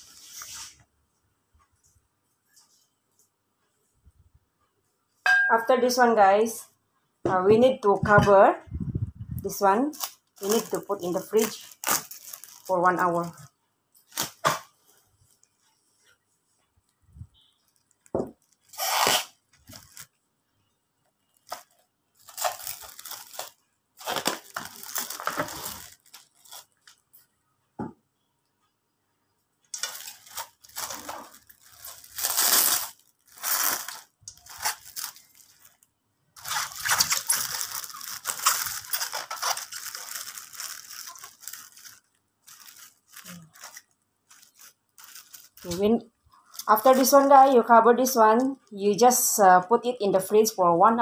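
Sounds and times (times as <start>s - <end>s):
cling film crinkling: 9.4s - 15.7s, 17.4s - 20.2s, 21.2s - 27.2s, 29.7s - 47.4s.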